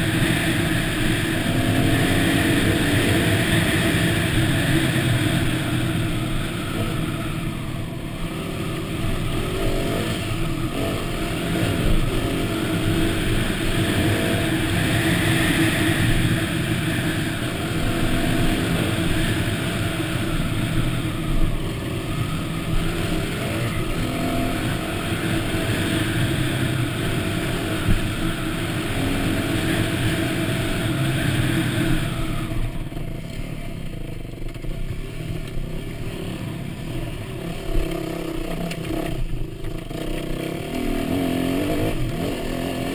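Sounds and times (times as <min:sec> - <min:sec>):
dirt bike engine running: 0:00.0 - 0:42.9.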